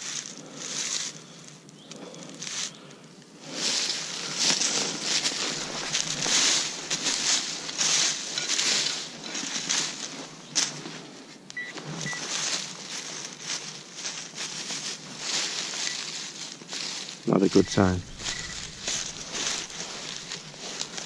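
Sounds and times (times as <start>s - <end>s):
rustling in leaf litter: 0.0s - 1.6s, 2.2s - 2.8s, 3.4s - 21.0s
short electronic beeps: 11.6s - 12.2s, 17.5s - 19.2s.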